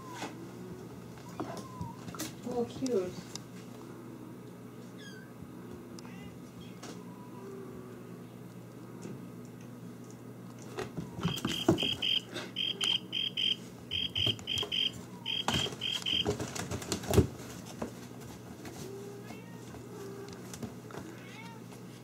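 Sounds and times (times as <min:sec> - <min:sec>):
electronic beeper high beeps: 0:11.3 - 0:16.3.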